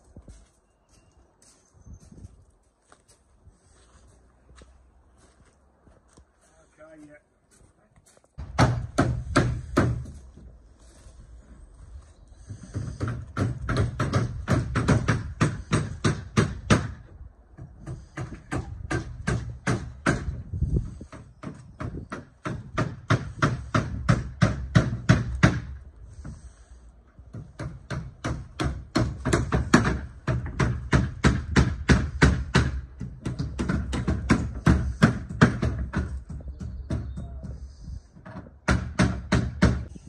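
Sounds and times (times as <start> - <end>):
hammer on wooden boards: 8.4 - 10.2, 12.5 - 26.4, 27.3 - 39.9.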